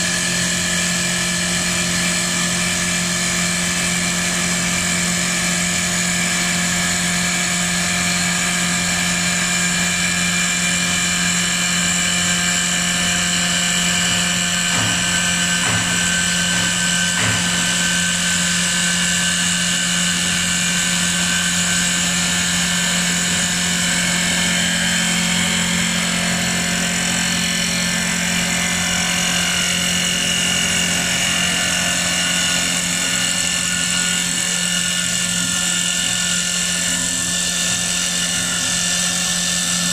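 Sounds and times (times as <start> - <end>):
lathe machine whine: 0.0 - 39.9
cutter hissing on wood: 9.0 - 39.9.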